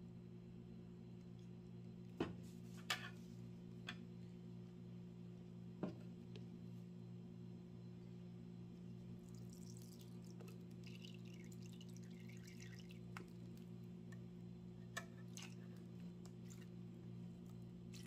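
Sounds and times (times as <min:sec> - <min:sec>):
juice trickling into metal spoon: 0:09.2 - 0:13.7.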